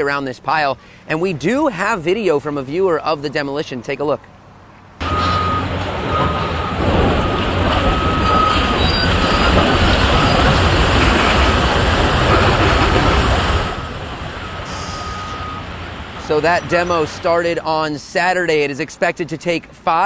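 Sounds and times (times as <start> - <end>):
heavy excavators working: 4.3 - 18.8
high metallic squeal: 8.0 - 11.7.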